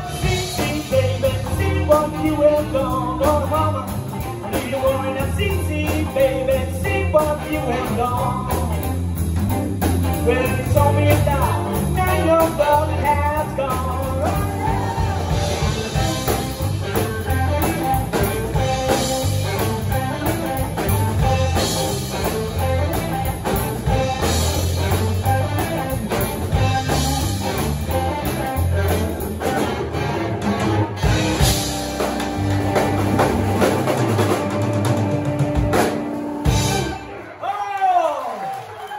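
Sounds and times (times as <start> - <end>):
blues band playing: 0.0 - 37.5.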